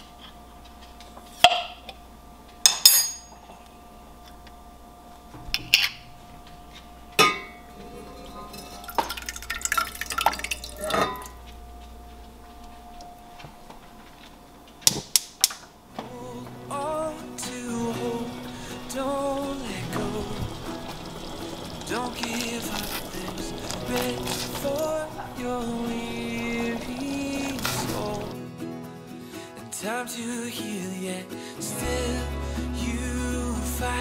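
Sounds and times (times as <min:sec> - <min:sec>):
faint steady hum: 0:00.0 - 0:28.5
glass jar clinking: 0:07.2 - 0:11.4.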